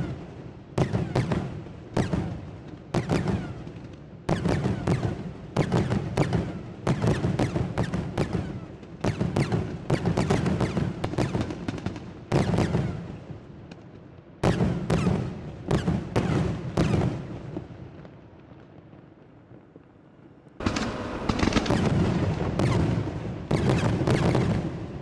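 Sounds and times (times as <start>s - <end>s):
fireworks bursting with sharp bangs: 0.0s - 25.0s
rolling echo: 14.5s - 25.0s.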